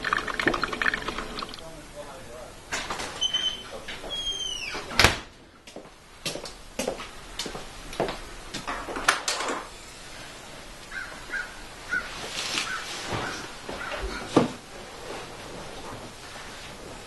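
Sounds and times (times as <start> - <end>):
door creaking: 2.8 - 5.2
door banging shut: 4.7 - 5.3
footsteps on concrete: 5.6 - 8.7.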